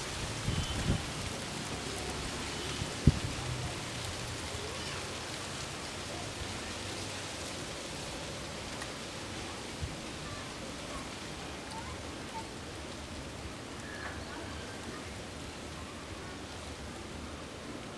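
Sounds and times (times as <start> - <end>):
wind noise: 0.1 - 1.2, 3.0 - 3.4
wind gusts thumping microphone: 0.1 - 1.3.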